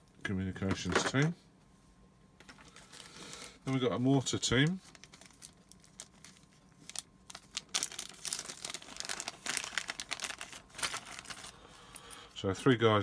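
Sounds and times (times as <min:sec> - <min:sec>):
plastic bag crinkling: 0:04.6 - 0:12.3.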